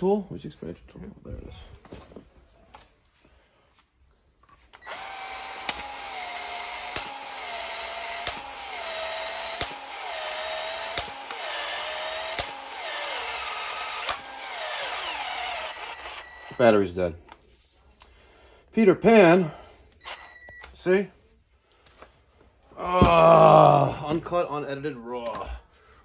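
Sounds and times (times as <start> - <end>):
expansion tool motor whine: 4.8 - 16.6.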